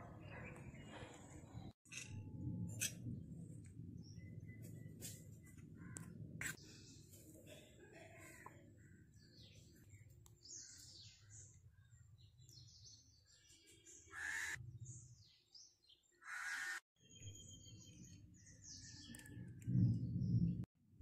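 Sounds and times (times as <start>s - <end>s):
birds calling: 8.8s - 15.3s, 16.0s - 16.8s.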